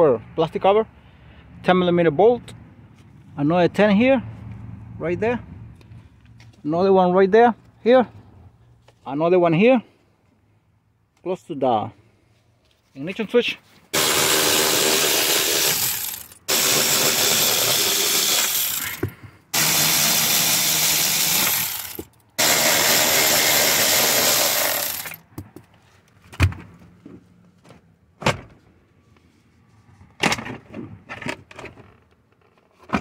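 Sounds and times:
electric ratchet spinning: 0:14.0 - 0:25.2.

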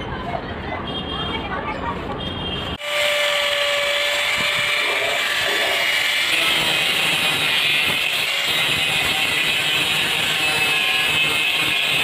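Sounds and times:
angle grinder grinding steel: 0:02.8 - 0:12.0.

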